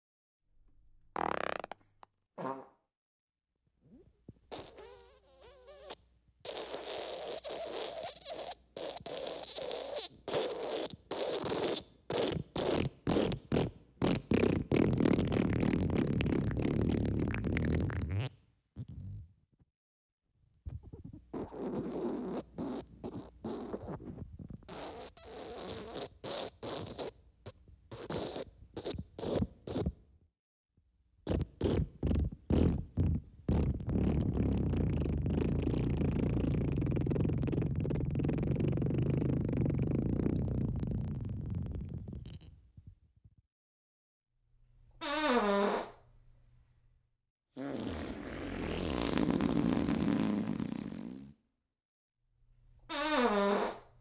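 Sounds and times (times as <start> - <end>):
wet sputtering fart: 1.1 - 2.8, 3.9 - 19.4, 20.7 - 27.2, 27.9 - 30.0, 31.3 - 42.6, 45.0 - 46.0, 47.6 - 51.4, 52.9 - 54.0.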